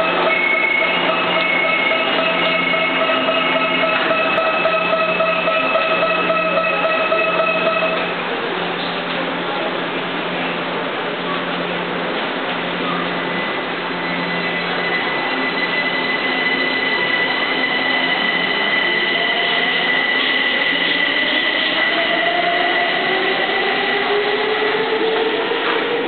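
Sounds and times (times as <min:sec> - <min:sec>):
steady high tone: 0:00.0 - 0:08.3, 0:14.0 - 0:25.2
train running noise: 0:00.0 - 0:26.0.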